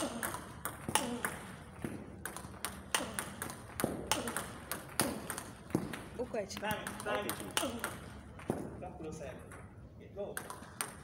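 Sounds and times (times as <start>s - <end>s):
table tennis ball clicking: 0.0s - 1.6s, 2.2s - 8.5s, 10.4s - 11.0s.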